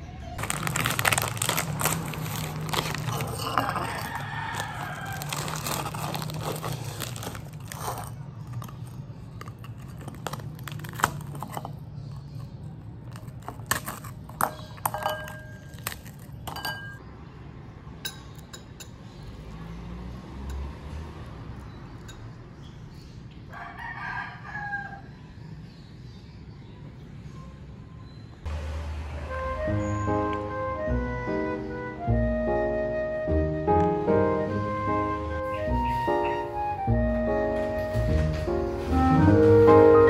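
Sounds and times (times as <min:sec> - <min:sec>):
plastic wrapper crinkling: 0:00.4 - 0:16.5
toasted bread crackling: 0:00.4 - 0:16.6.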